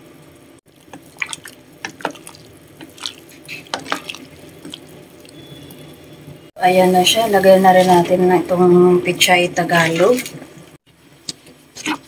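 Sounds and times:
broth boiling in a pot: 0:00.0 - 0:08.6.

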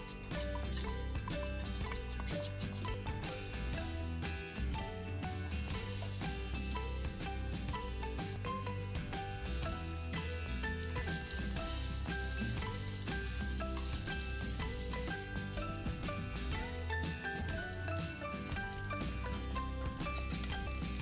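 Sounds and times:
background music: 0:00.0 - 0:21.0
rice sizzling in a wok: 0:05.2 - 0:21.0.

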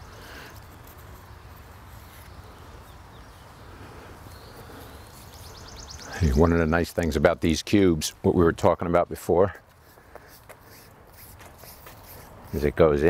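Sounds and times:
insects buzzing: 0:00.0 - 0:07.1
faint bird chirps: 0:02.1 - 0:06.4.

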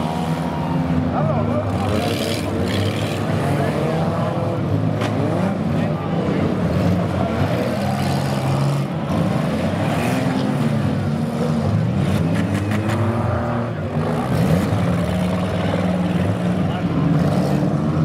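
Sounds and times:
car engines revving: 0:00.0 - 0:18.0.

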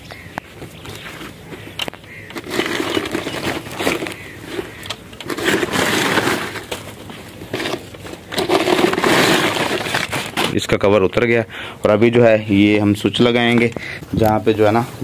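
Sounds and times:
sacks rustling and crinkling: 0:00.6 - 0:10.8.

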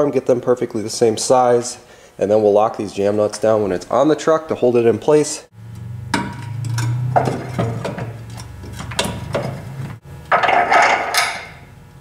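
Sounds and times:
low steady hum: 0:00.0 - 0:12.0
metal clunking and scraping: 0:06.0 - 0:11.6.

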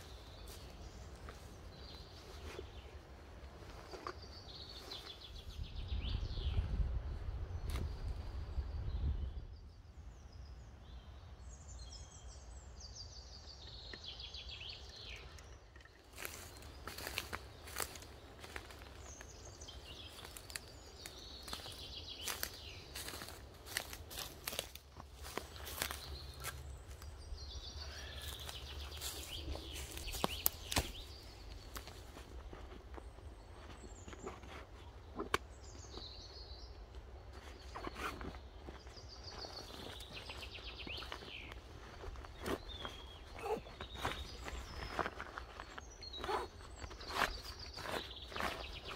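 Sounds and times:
birds chirping: 0:00.0 - 0:48.9
songbird singing: 0:00.0 - 0:48.9
footsteps on dry leaves: 0:16.0 - 0:34.8, 0:37.3 - 0:48.9.

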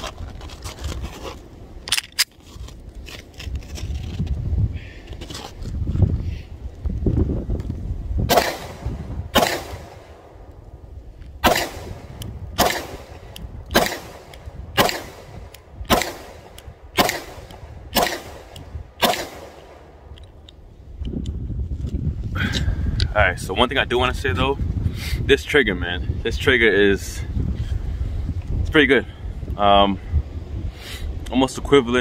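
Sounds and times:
pistol shots: 0:08.3 - 0:10.4, 0:11.4 - 0:20.0.

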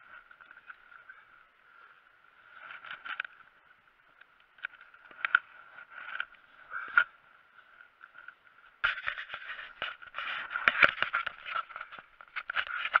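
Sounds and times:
camera handling scraping and knocks: 0:08.2 - 0:13.0.

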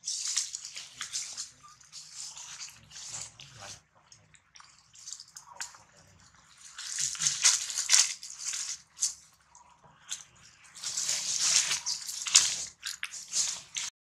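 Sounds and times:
dry leaves rustling and crunching: 0:00.0 - 0:03.4, 0:06.5 - 0:09.2, 0:10.2 - 0:13.9
sharp leaf crackles: 0:00.0 - 0:03.8, 0:06.6 - 0:09.2, 0:10.1 - 0:13.9.

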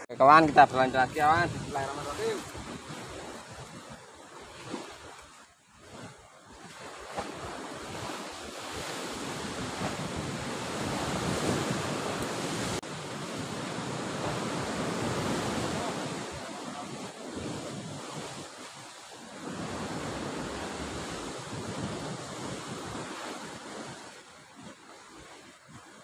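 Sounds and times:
wind buffeting microphone: 0:00.3 - 0:04.0, 0:07.1 - 0:18.8, 0:19.4 - 0:24.0
sea surf breaking on rocks: 0:00.3 - 0:05.2, 0:06.6 - 0:25.7.

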